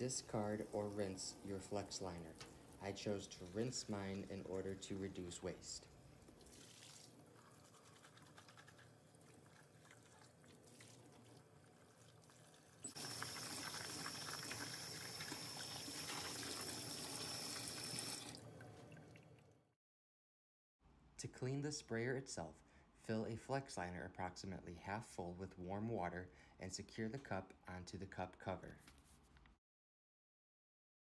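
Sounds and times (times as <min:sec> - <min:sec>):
tap water rushing into plastic cup: 0:12.9 - 0:19.0.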